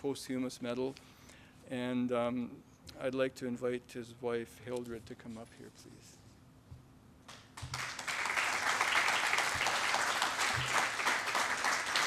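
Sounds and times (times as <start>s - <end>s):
audience applauding: 7.6s - 12.0s.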